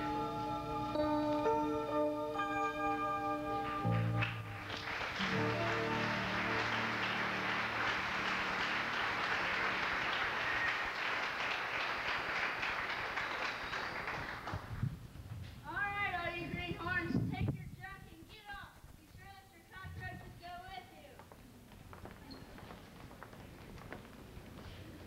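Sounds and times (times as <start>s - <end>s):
low music notes: 0.0s - 9.8s
audience clapping: 3.6s - 14.9s, 21.2s - 25.0s.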